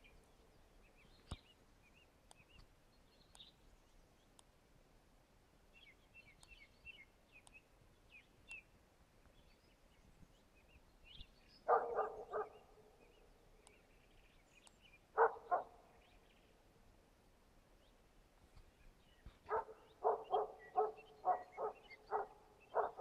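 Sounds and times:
small birds chirping faintly: 0.0 - 23.0
distant dog barking: 11.7 - 13.0, 15.2 - 15.8, 19.5 - 23.0.

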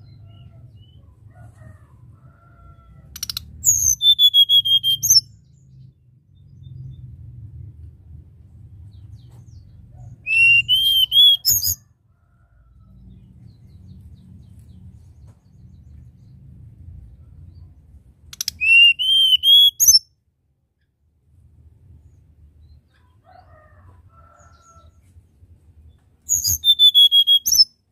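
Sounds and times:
bird whistling song: 3.2 - 5.3, 10.2 - 11.8, 18.3 - 20.1, 26.3 - 27.8.

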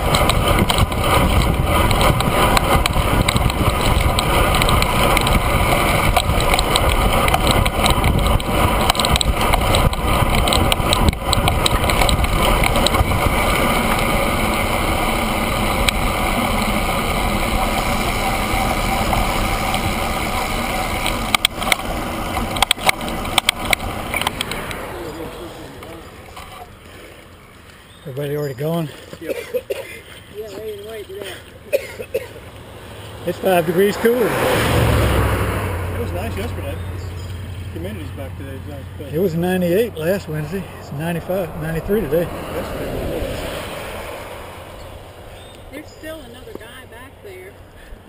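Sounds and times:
sharp clicks: 0.0 - 13.3, 20.9 - 24.8
wind rushing over microphone: 0.0 - 24.9, 40.2 - 46.2
tyre noise on asphalt: 0.0 - 48.0.

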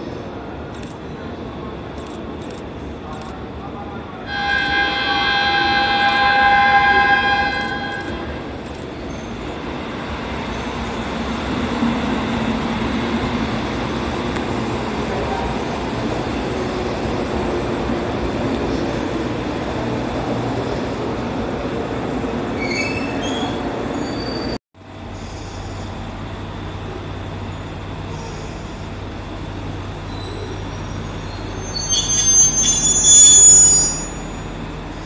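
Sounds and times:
electric train rumble: 0.0 - 35.0
train wheel squeal: 4.3 - 9.5, 22.6 - 26.0, 27.5 - 28.9, 29.7 - 35.0.

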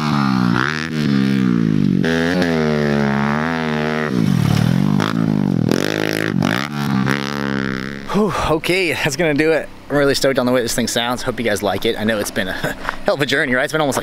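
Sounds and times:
motorbike engine revving: 0.0 - 8.4.

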